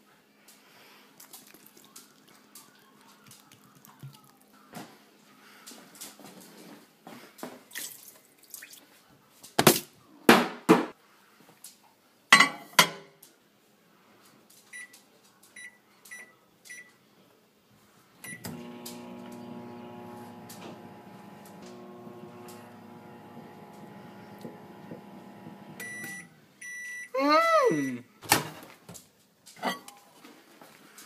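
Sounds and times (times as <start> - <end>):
microwave oven humming: 18.2 - 26.3
keypad beeps: 25.8 - 27.1.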